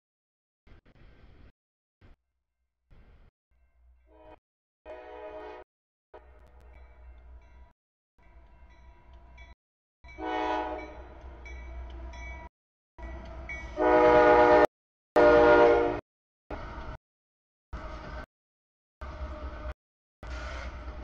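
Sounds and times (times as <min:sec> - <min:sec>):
locomotive air horn blasts: 0:04.1 - 0:05.6, 0:10.2 - 0:11.0, 0:13.8 - 0:16.0.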